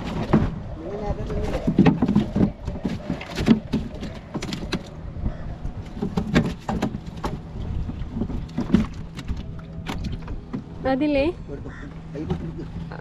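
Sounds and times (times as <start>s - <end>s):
knocks and rattles on fish crate: 0.0s - 5.0s, 5.7s - 10.7s
steady low rumble: 0.0s - 13.0s.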